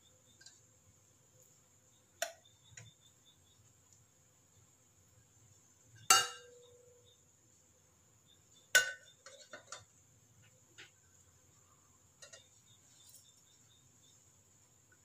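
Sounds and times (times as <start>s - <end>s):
metal plate clanking against pot: 6.0s - 6.6s, 8.8s - 9.9s, 12.2s - 12.6s.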